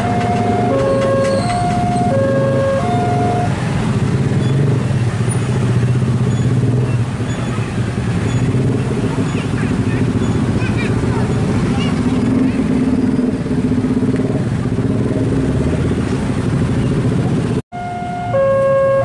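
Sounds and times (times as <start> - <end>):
two-note warning tone: 0.0 - 3.6, 17.8 - 19.0
train rumbling along track: 0.0 - 17.6.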